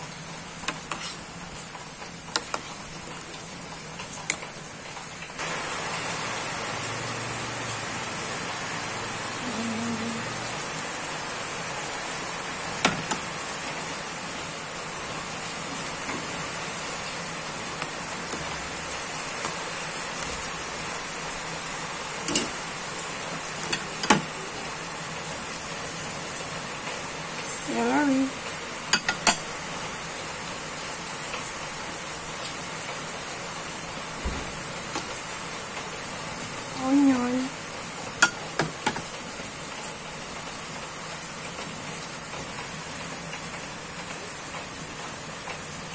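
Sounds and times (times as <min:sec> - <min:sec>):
stew boiling in a pot: 0:00.0 - 0:45.9.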